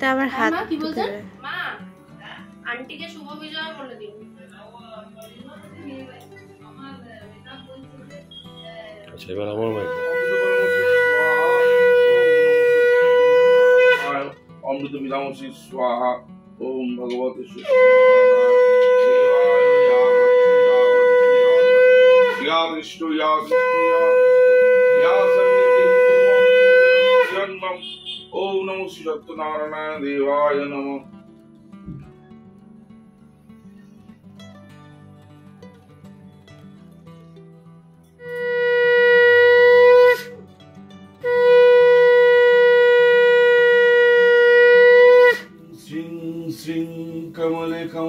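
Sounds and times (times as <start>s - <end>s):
conch shell blasts: 9.7s - 14.4s, 17.6s - 28.3s, 38.2s - 40.4s, 41.2s - 45.6s.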